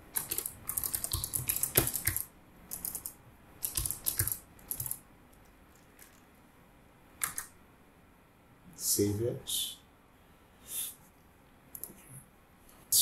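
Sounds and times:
keyboard typing: 0:00.1 - 0:05.0, 0:05.7 - 0:06.2, 0:07.2 - 0:07.5.

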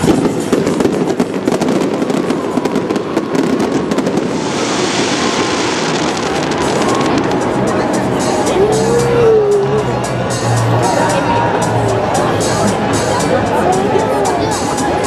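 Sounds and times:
fireworks crackling hiss: 0:00.0 - 0:08.4
fireworks cracks and bangs: 0:00.0 - 0:08.5.

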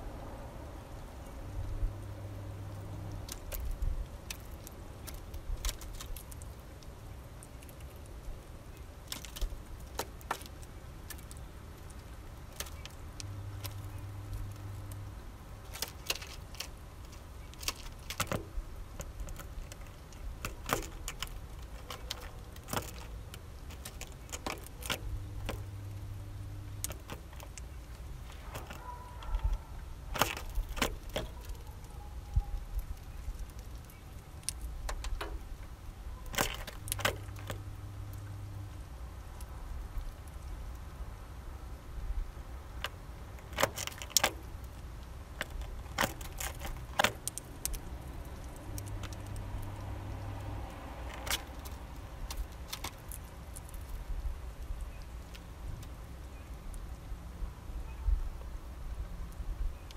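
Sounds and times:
beak cracking seeds: 0:02.7 - 0:08.2, 0:08.8 - 0:40.8, 0:42.8 - 0:56.8
low hum: 0:35.5 - 0:40.0.

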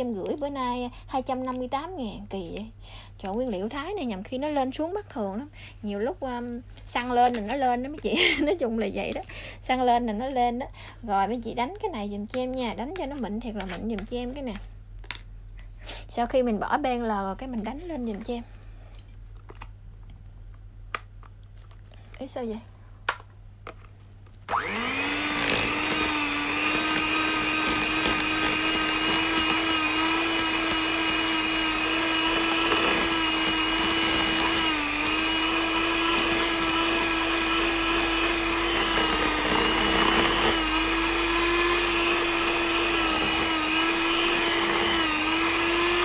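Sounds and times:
electric hand mixer whining: 0:24.5 - 0:46.0.

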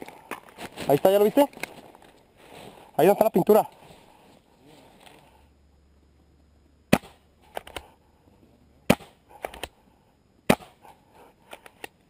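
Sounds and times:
paintball marker shots: 0:06.9 - 0:07.9, 0:08.9 - 0:09.8, 0:10.4 - 0:10.8.

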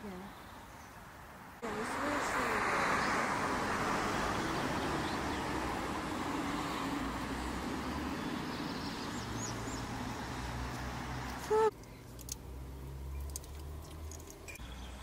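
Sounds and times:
car passing: 0:01.0 - 0:15.0
faint bird chirps: 0:14.5 - 0:15.0.

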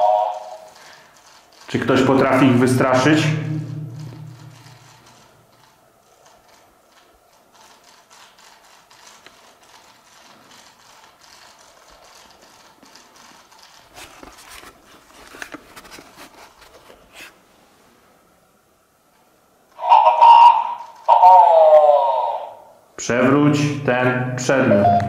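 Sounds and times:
robot gears clicking and rattling: 0:00.6 - 0:14.2.

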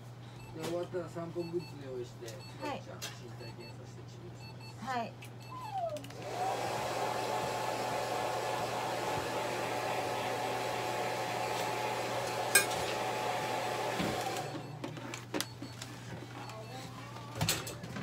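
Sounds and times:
hair dryer whine and rush: 0:06.1 - 0:14.7.

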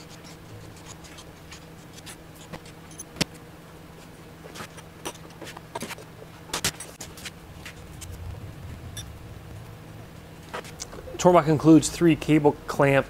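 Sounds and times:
steady low hum: 0:06.0 - 0:13.0.

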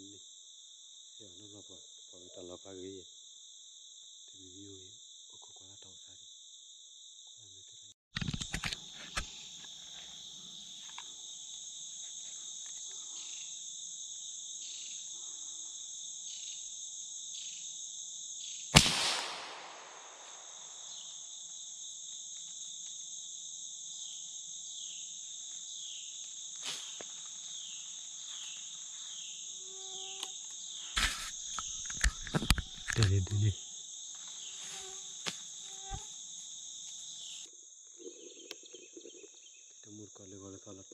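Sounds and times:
insects chorus: 0:00.0 - 0:40.9
loud gunshot: 0:18.8 - 0:20.8.

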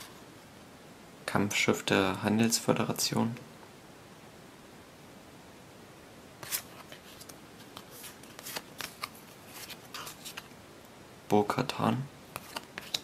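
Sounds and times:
trading cards flicked and rustled: 0:06.4 - 0:10.5, 0:12.3 - 0:13.0.

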